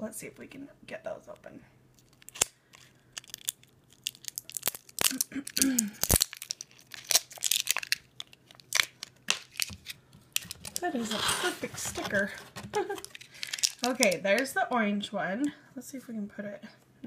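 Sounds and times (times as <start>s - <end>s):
packaging crinkling and tearing: 1.9s - 14.5s.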